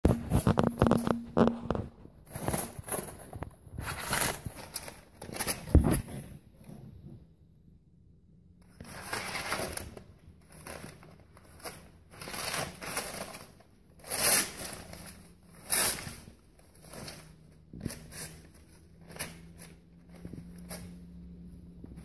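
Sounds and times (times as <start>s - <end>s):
newspaper rustling and crinkling: 0.1s - 6.2s, 8.8s - 21.1s.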